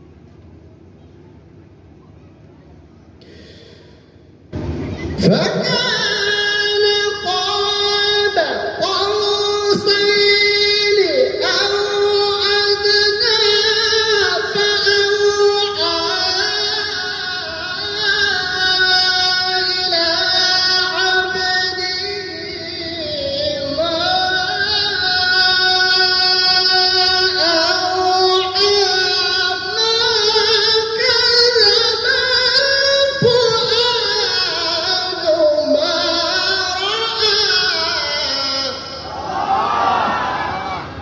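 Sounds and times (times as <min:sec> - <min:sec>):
person reciting melodically: 0:04.9 - 0:39.2.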